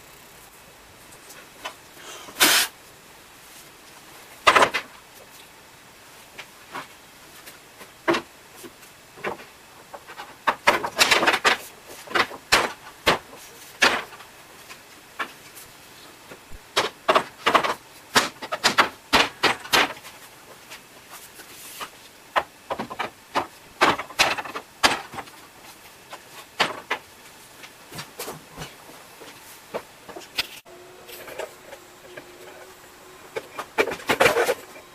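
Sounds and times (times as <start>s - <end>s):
laminate panels knocking and clacking: 4.4s - 4.9s, 9.2s - 14.2s, 16.7s - 20.1s, 22.3s - 25.4s, 26.6s - 27.1s.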